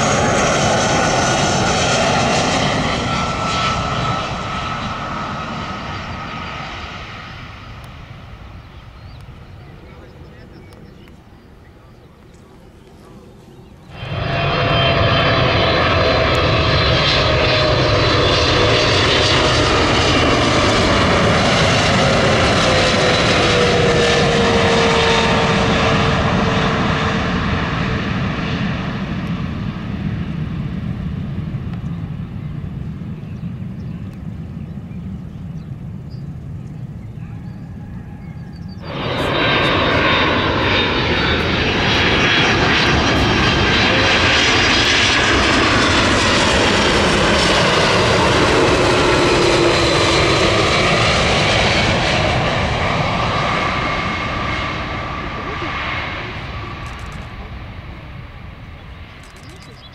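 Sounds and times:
jet airliner engines whining: 0.0 - 59.9.

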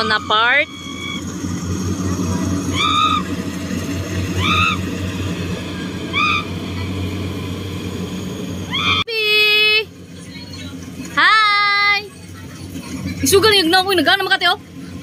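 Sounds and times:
bird calling: 0.0 - 1.4, 2.6 - 3.5, 4.2 - 5.0, 6.0 - 6.9, 8.6 - 9.1
distant harvester engine: 0.0 - 15.0.

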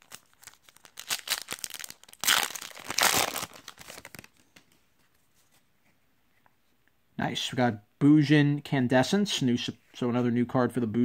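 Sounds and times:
foil wrapper ripping: 0.0 - 4.3
foil wrapper crinkling: 0.0 - 4.4.

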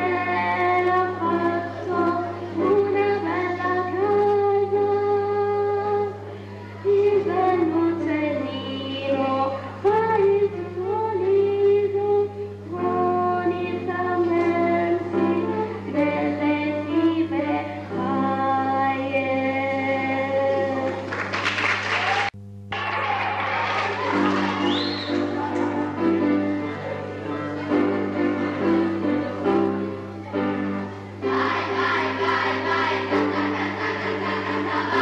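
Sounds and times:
piano accompaniment: 24.0 - 35.0.

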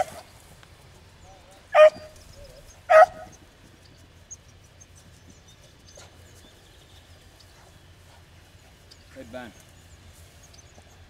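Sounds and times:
dog barking: 0.0 - 0.2, 1.7 - 2.2, 2.9 - 3.4.

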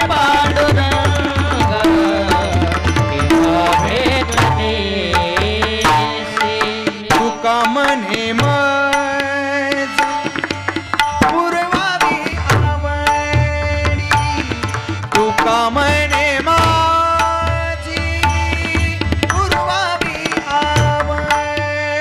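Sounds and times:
people singing: 0.0 - 8.8
hand drums playing rhythm: 0.0 - 22.0.

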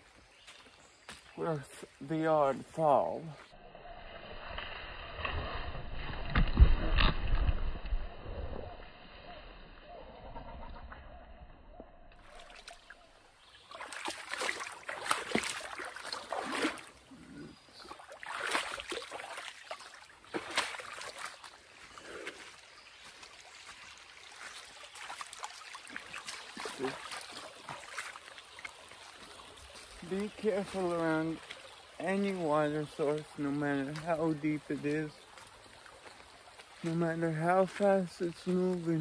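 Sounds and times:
footsteps on wet trail: 0.0 - 3.6, 12.2 - 39.0.

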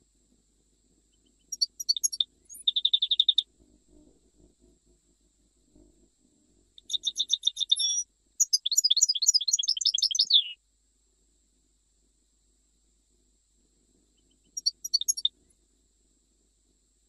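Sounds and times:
bird twittering song: 1.2 - 3.5, 6.8 - 10.6, 14.2 - 15.3.

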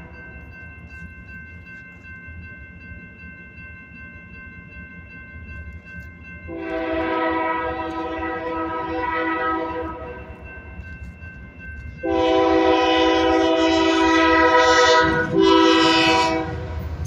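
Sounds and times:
crossing bell ringing: 0.0 - 17.0
locomotive air horn blast: 6.5 - 10.2, 12.0 - 16.7.

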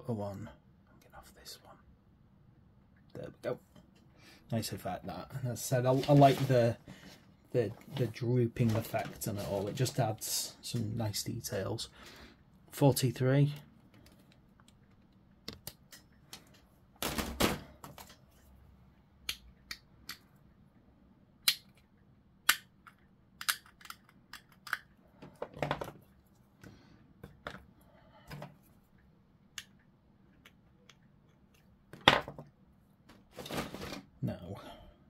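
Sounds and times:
plastic pieces clicking: 22.5 - 24.9.

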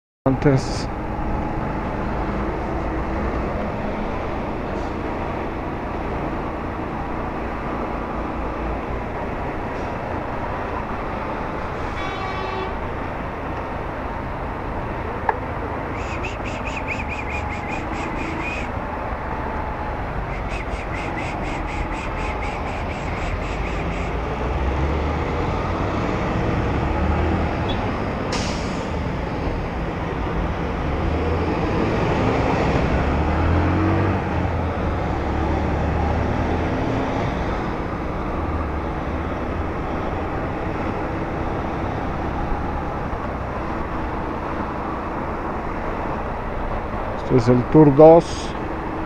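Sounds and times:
wind and road noise: 0.3 - 49.0
short hiss: 28.3 - 28.9.

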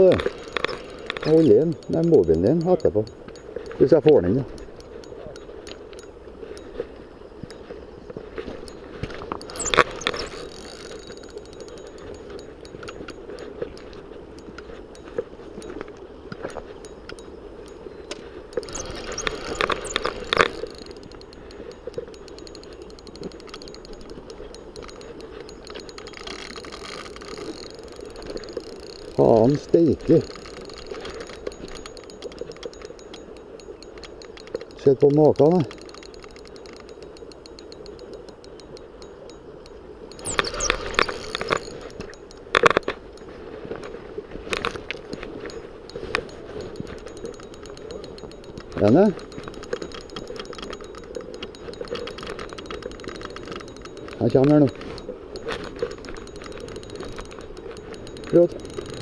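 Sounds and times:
fishing reel clinks and knocks: 0.0 - 59.0
spinning reel ticking: 0.0 - 59.0
scraping and rubbing on fishing rod: 8.3 - 15.4, 17.7 - 21.5, 24.6 - 29.2.

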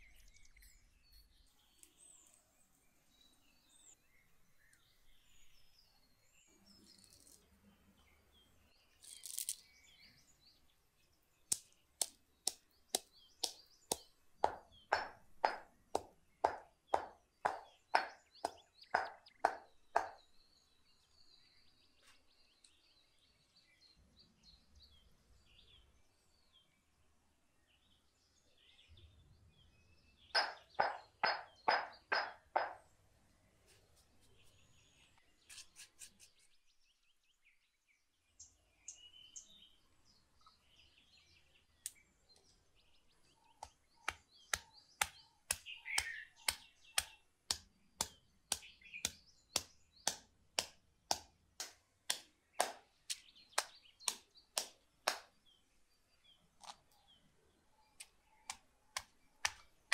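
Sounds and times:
faint birds chirping: 0.0 - 59.9
stone pestle pounding in mortar: 13.4 - 20.2, 30.4 - 32.8.

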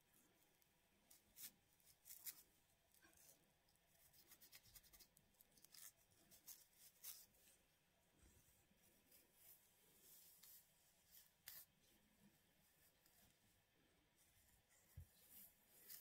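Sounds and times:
comb scratching scalp: 1.1 - 7.4, 9.1 - 11.8, 15.2 - 16.0.

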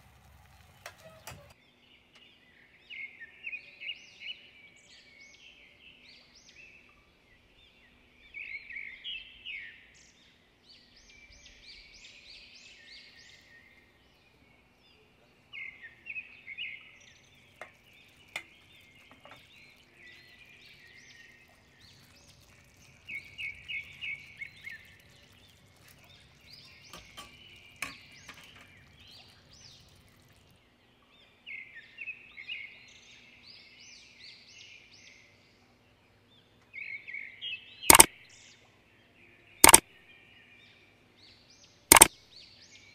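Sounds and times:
small bird chirping song: 0.2 - 42.9
faint clicks: 39.6 - 39.8.

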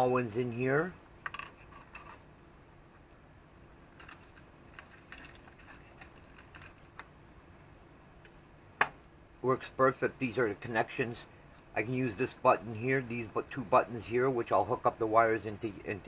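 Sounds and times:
wires and connectors clicking: 3.9 - 7.1.

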